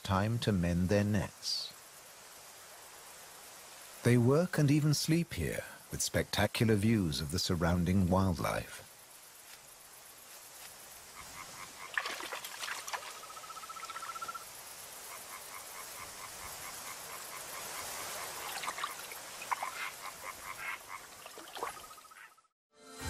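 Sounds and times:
steady high hiss: 0.0s - 22.1s
frogs croaking: 5.6s - 22.5s.

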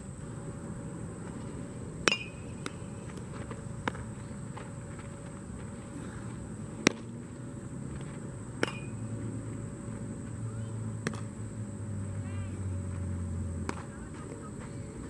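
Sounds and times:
low outdoor hum: 0.0s - 15.0s
baseball bat cracks: 2.0s - 4.7s, 6.8s - 7.2s, 8.0s - 9.1s, 11.0s - 11.4s.

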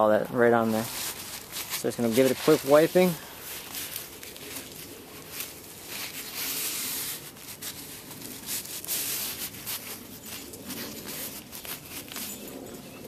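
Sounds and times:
paper towel rubbing wood: 0.7s - 12.6s.

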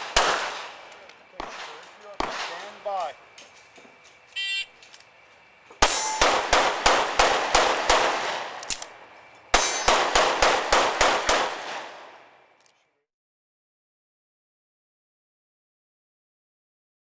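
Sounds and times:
pistol shots in rapid strings: 0.0s - 0.8s, 5.8s - 8.6s, 9.6s - 11.9s
shot timer beep: 4.4s - 4.7s.

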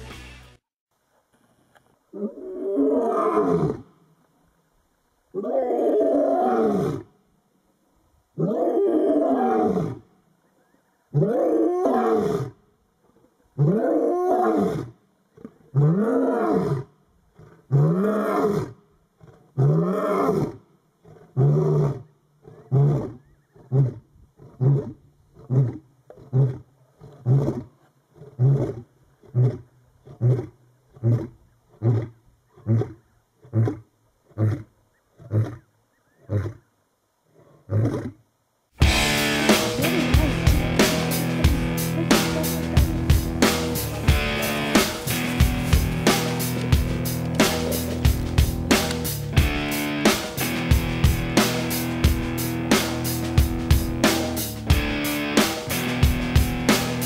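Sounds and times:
lion grunting: 39.1s - 48.9s.

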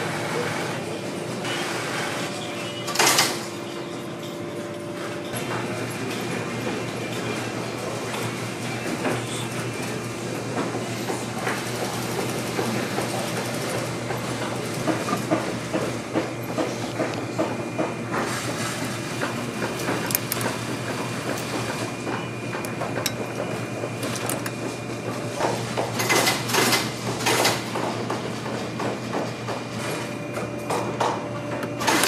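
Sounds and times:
sewing machine motor hum: 0.0s - 3.2s, 5.0s - 27.8s, 31.5s - 32.0s.

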